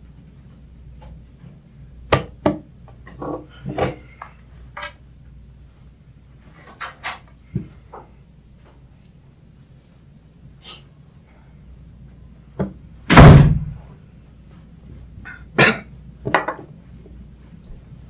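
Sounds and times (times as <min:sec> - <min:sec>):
loud slam: 0:13.1 - 0:13.8.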